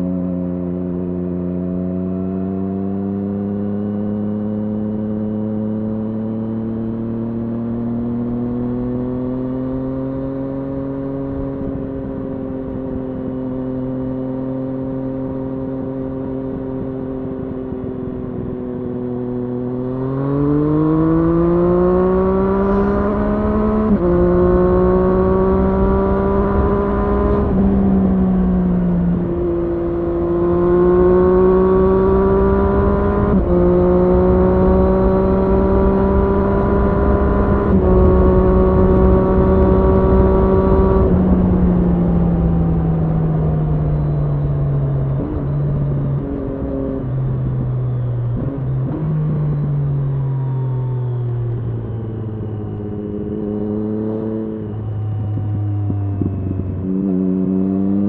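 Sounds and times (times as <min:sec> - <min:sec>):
motorcycle engine accelerating: 0:00.0 - 0:58.0
wind rush: 0:21.0 - 0:49.0.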